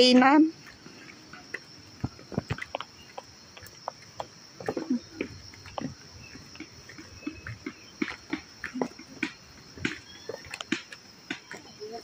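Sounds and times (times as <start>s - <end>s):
footsteps on stone steps: 0.0s - 12.0s
insects droning in trees: 0.0s - 12.0s.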